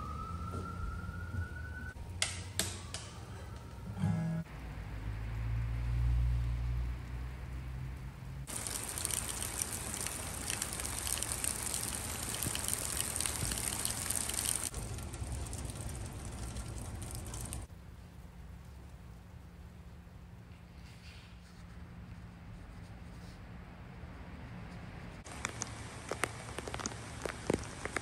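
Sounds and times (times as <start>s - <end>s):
rain splashing on surfaces: 4.9s - 20.0s, 25.2s - 28.0s.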